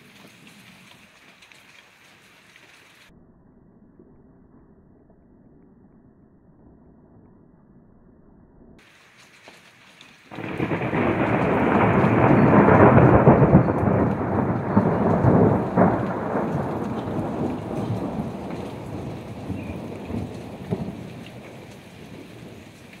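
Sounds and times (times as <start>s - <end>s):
thunder rolling rumble: 10.3s - 23.0s.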